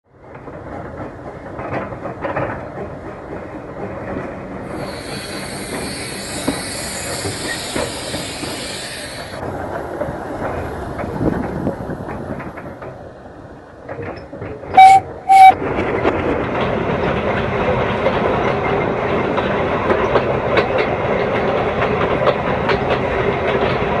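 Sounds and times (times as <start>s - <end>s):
loud hiss of steam: 4.7s - 9.6s.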